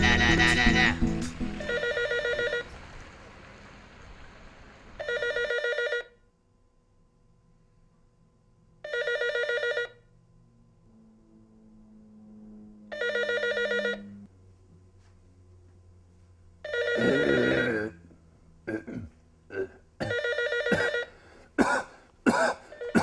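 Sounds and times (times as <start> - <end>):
music: 0.0 - 1.8
telephone ringing: 1.6 - 2.7, 5.0 - 6.2, 8.8 - 10.0, 12.9 - 14.2, 16.7 - 17.8, 20.1 - 21.2.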